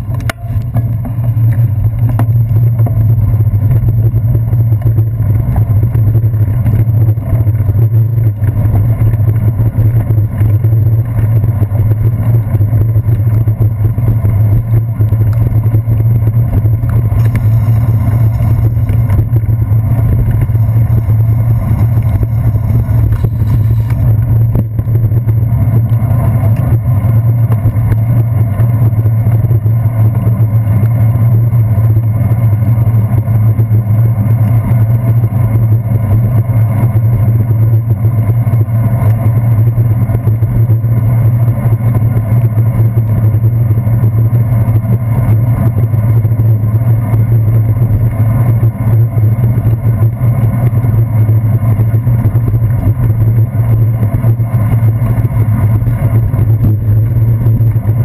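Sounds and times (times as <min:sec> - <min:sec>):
road vibration rumble: 0:00.0 - 0:58.0
wind buffeting: 0:12.4 - 0:26.4.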